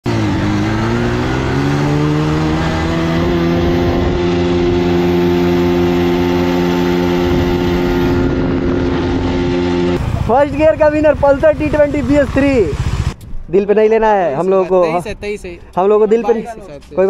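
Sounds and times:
motorcycle engine accelerating: 0:00.0 - 0:13.2
wind on microphone: 0:03.0 - 0:10.0.

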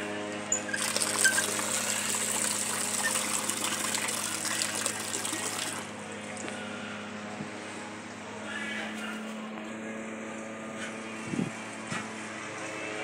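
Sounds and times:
steady low hum: 0:00.0 - 0:13.0
water gushing into trough: 0:00.6 - 0:05.9.

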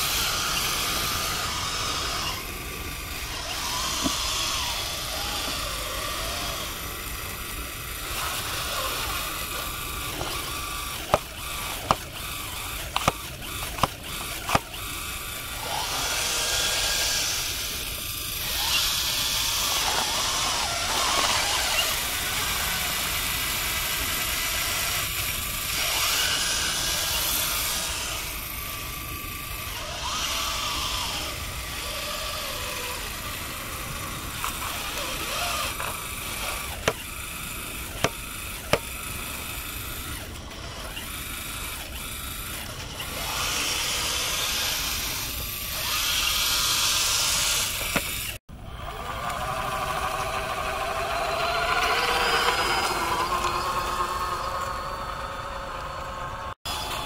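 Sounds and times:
electric motors and hydraulic whine: 0:00.0 - 0:57.0
sharp clicks: 0:09.0 - 0:15.4.

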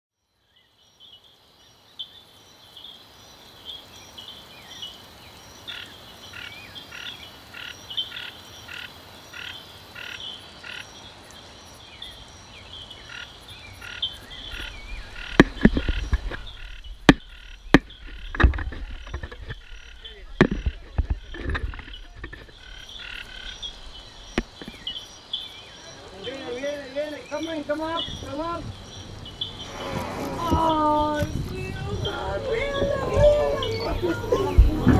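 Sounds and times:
frogs calling: 0:00.3 - 0:34.9
wind and water rumble: 0:12.3 - 0:25.2, 0:27.2 - 0:34.9.

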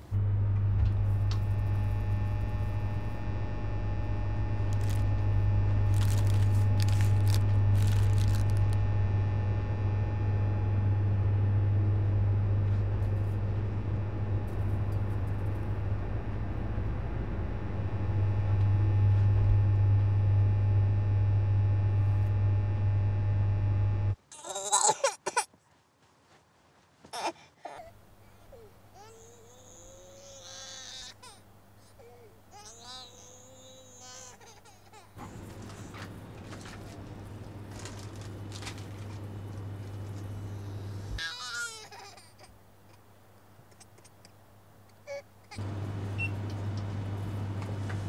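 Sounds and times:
thin high whine: 0:00.0 - 0:24.2
low electrical hum: 0:00.0 - 0:25.4, 0:27.6 - 0:48.0.

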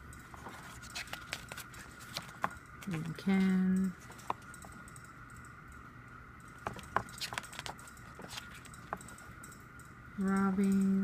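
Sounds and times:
faint high hum: 0:00.0 - 0:11.0
glossy pages turning: 0:00.4 - 0:03.2, 0:06.7 - 0:08.7.

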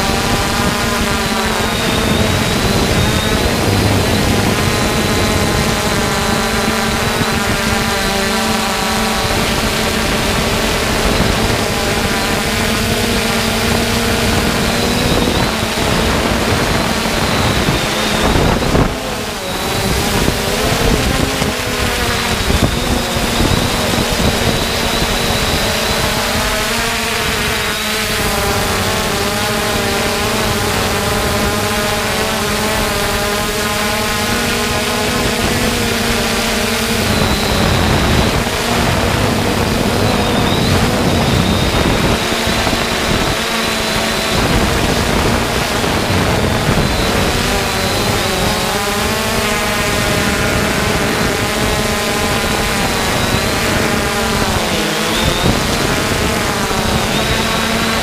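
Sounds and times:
drone propellers humming: 0:00.0 - 0:58.0
wind noise on microphone: 0:00.0 - 0:58.0.

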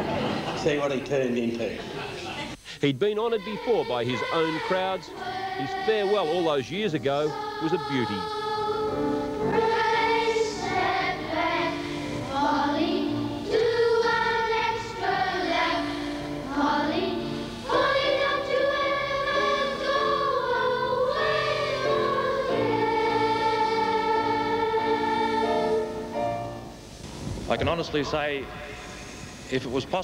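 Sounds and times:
choir singing: 0:03.1 - 0:26.8.

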